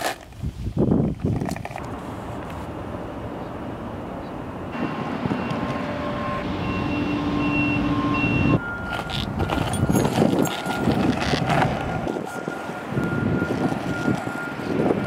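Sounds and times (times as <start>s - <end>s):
steady low rumble: 1.8s - 15.0s
electronic beeps: 5.3s - 14.8s.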